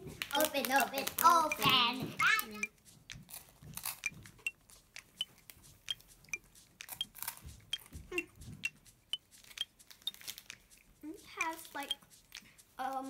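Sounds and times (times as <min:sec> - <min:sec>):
plastic wrapper crinkling: 0:00.0 - 0:01.5, 0:09.4 - 0:13.0
biscuit being bitten and chewed: 0:02.6 - 0:08.3.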